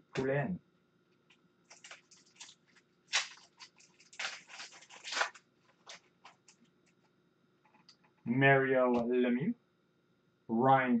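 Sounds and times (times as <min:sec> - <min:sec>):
plastic wrapper crinkling: 0:01.7 - 0:07.1.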